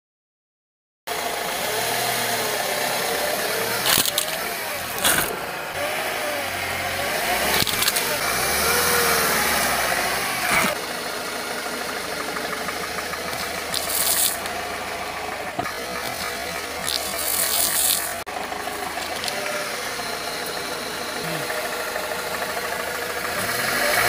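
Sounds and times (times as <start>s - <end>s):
car engine idling: 1.1s - 24.0s
tyre crunching objects: 3.2s - 6.0s, 6.7s - 8.9s, 10.3s - 10.8s, 13.2s - 14.6s, 15.3s - 20.6s.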